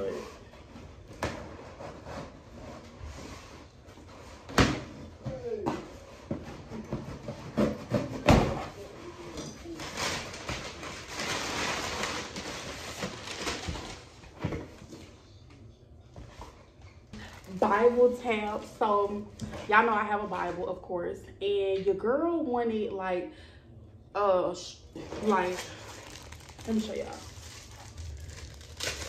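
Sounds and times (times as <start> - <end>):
packaging rustling: 25.2 - 29.0.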